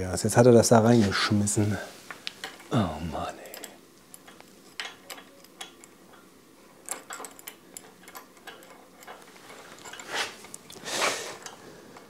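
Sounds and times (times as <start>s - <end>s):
metal parts clicking and tapping: 2.2s - 2.8s, 3.4s - 10.8s, 11.4s - 12.0s.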